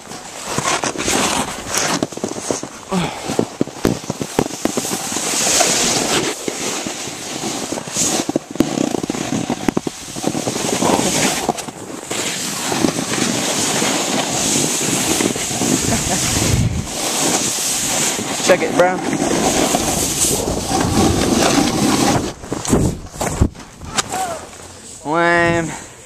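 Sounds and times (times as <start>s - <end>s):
snowboard scraping over snow: 0.0s - 25.4s
wind on microphone: 12.6s - 24.2s.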